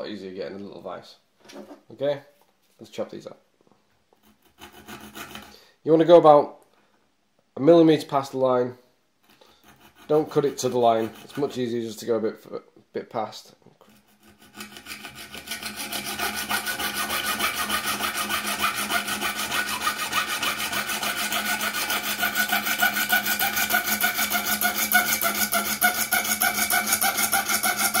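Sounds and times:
coping saw cutting: 4.2 - 5.5, 9.5 - 11.6, 13.9 - 28.0.

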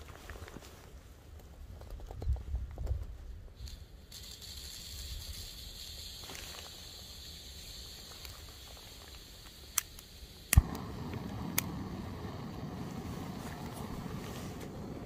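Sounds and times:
gas hiss: 3.6 - 15.0
gas burner rushing: 7.2 - 15.0
lighter click: 9.7 - 12.8
burner catching with a pop: 10.5 - 11.8.

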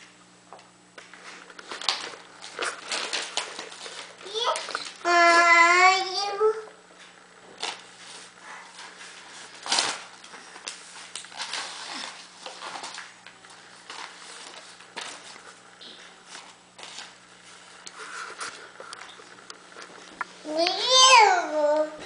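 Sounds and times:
paper rustling and crinkling: 1.1 - 5.3, 7.5 - 20.8.

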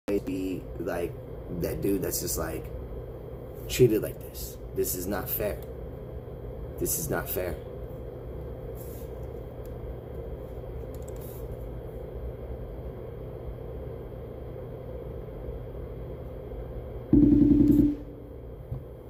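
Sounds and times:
low hum and rumble: 0.1 - 19.0
loud buzzing tone: 17.1 - 18.4.

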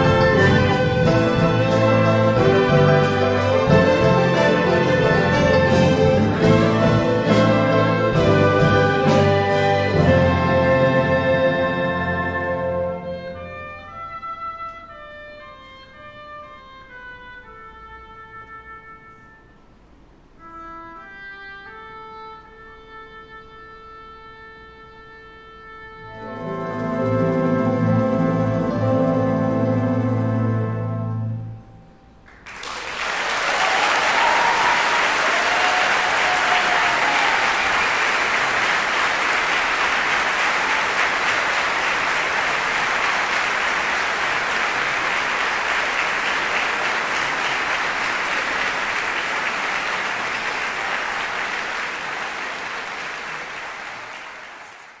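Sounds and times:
orchestra chord: 0.0 - 14.0, 26.0 - 32.0
audience applauding: 32.3 - 55.0
audience cheering: 32.5 - 55.0.

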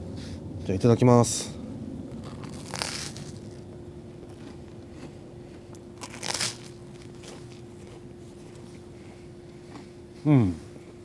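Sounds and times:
bites into crisp toast: 2.1 - 3.6, 5.7 - 7.8.

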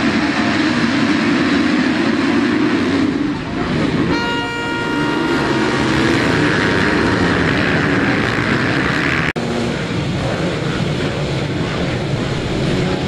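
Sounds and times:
motocross bikes accelerating: 0.0 - 13.0
held high tone: 4.1 - 8.0.

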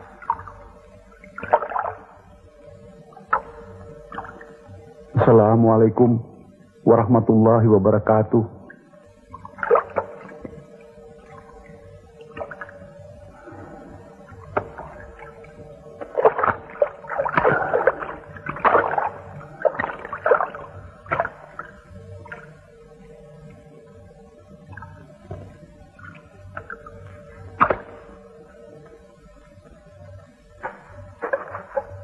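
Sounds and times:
faint steady tone: 0.0 - 32.0
river water splashing: 1.2 - 2.1, 9.5 - 10.7, 14.2 - 22.6, 25.3 - 28.8, 30.6 - 32.0.

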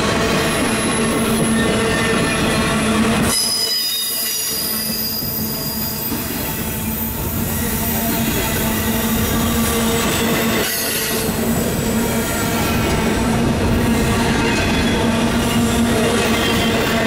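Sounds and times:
train wheels rumbling on rails: 0.0 - 17.0
high-pitched wheel squeal: 3.2 - 11.4.

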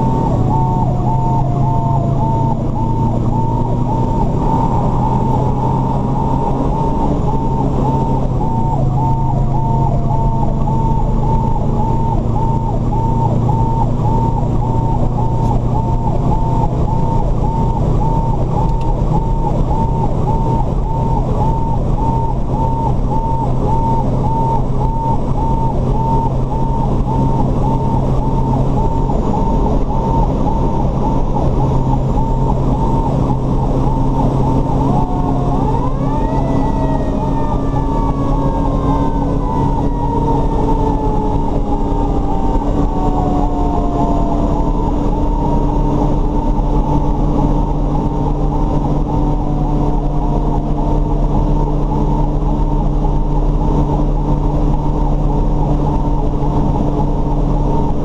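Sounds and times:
high pulsing beep: 0.0 - 35.5
engine droning: 0.0 - 58.0
road noise: 0.0 - 58.0.

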